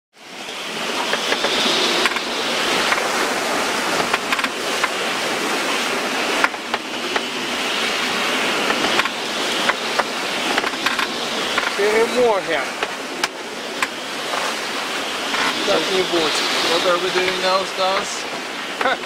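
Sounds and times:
gale-force wind: 0.2 - 19.0
breaking seas: 0.3 - 19.0.

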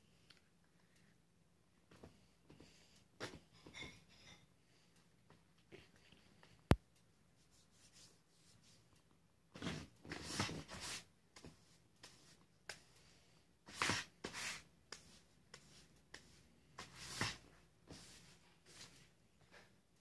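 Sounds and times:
paintbrush rustling in palette: 7.4 - 8.8, 10.2 - 12.4, 13.7 - 19.2.

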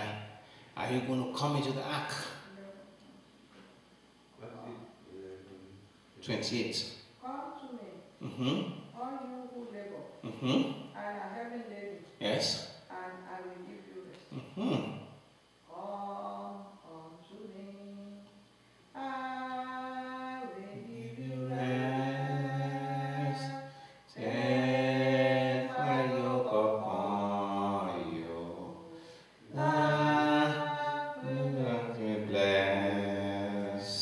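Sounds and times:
breaths: 0.4 - 0.8, 23.6 - 24.1, 28.9 - 29.4
man singing unaccompanied: 19.0 - 34.0.

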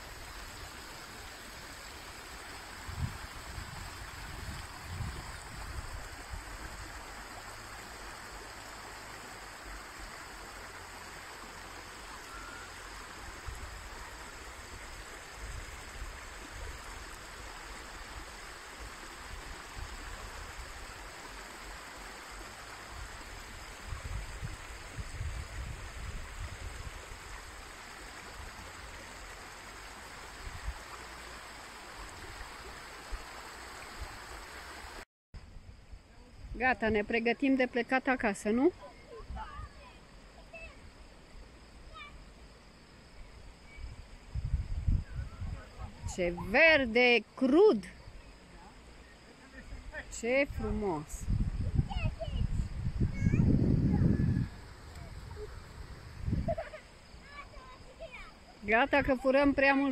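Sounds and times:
brook flowing over stones: 0.0 - 35.0, 54.4 - 58.8.

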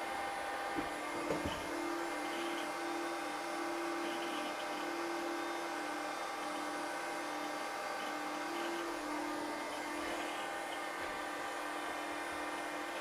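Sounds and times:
machine whirring hum: 0.0 - 13.0.

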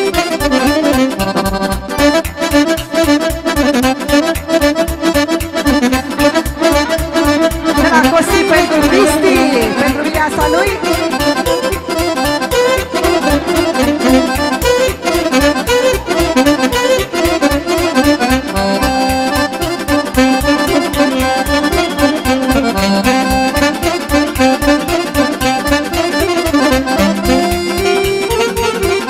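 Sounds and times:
accordion folk music: 0.0 - 29.0
quick bass beat: 5.7 - 16.6, 26.6 - 28.4.

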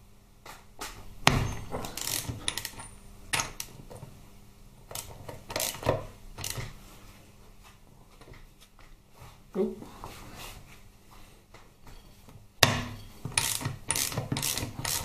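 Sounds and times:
ratchet clicking on metal: 1.8 - 3.8, 4.9 - 6.7, 13.3 - 15.0.

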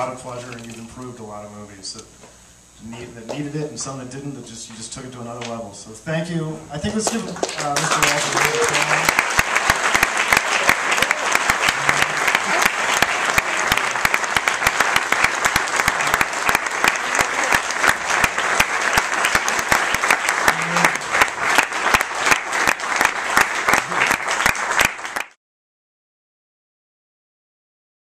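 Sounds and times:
audience applauding: 6.9 - 25.4.

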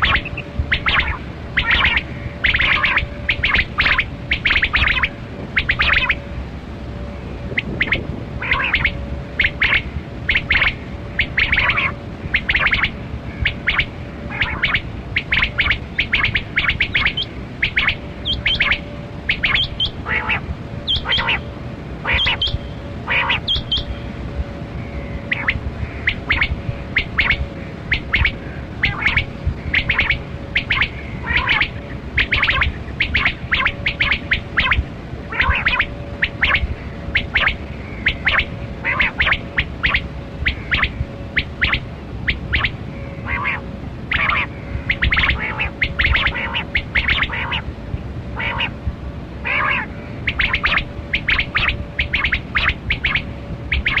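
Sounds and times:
quail calling: 0.0 - 6.3, 7.5 - 24.0, 24.8 - 47.7, 48.4 - 48.8, 49.4 - 54.0
faint steady hum: 0.0 - 54.0.

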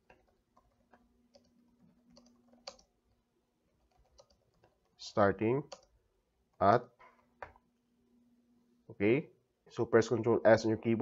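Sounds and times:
keyboard typing: 0.0 - 5.0, 5.6 - 6.0.

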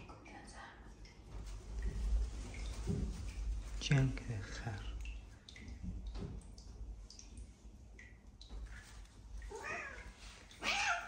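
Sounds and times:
cat meowing: 9.5 - 11.0.

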